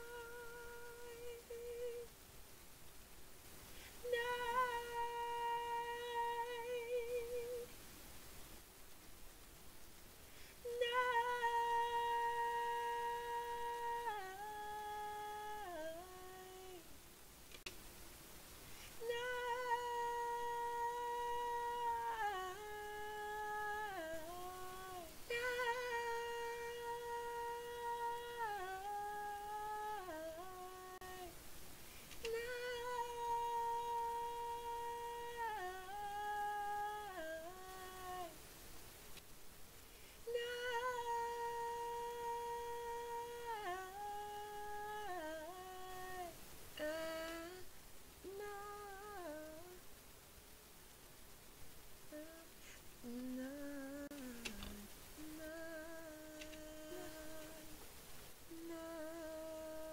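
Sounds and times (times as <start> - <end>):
woman humming: 0.0 - 2.1, 4.0 - 7.7, 10.6 - 16.9, 19.0 - 31.4, 32.1 - 38.4, 40.2 - 49.8, 52.1 - 57.8, 58.5 - 59.9
woman singing a cappella: 0.0 - 2.3, 3.6 - 8.4, 10.3 - 17.7, 18.8 - 38.6, 39.9 - 50.0, 52.0 - 59.9
singer breathing: 3.6 - 4.0, 10.2 - 10.6, 18.6 - 19.0, 31.8 - 32.2, 39.9 - 40.3.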